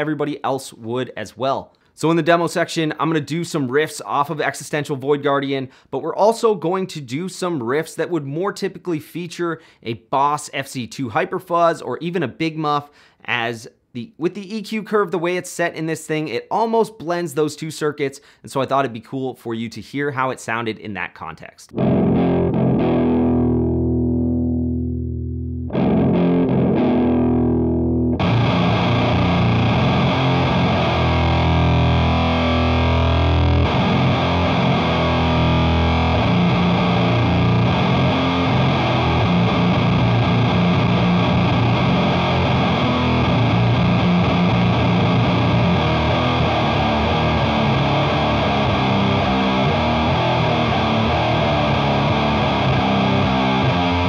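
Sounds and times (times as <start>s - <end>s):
distorted electric guitar riff: 21.7s - 54.0s.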